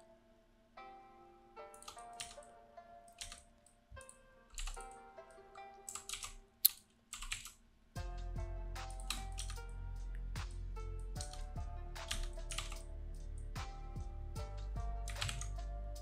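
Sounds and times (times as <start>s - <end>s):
soft background music: 0.0s - 16.0s
keyboard and mouse clicking: 1.7s - 2.5s, 3.1s - 5.0s, 5.9s - 7.6s, 8.8s - 9.6s, 11.1s - 12.9s, 15.1s - 15.6s.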